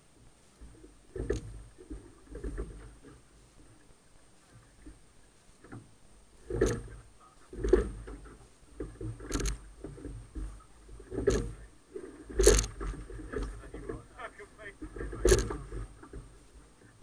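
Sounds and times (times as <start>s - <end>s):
water rushing along hull: 0.0s - 17.0s
oars knocking in oarlocks: 5.6s - 16.4s.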